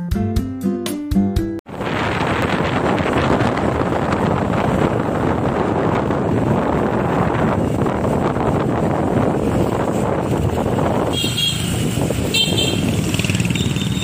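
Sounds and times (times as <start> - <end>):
wind rushing over microphone: 1.7 - 14.0
motorbike horn beeps: 11.0 - 14.0.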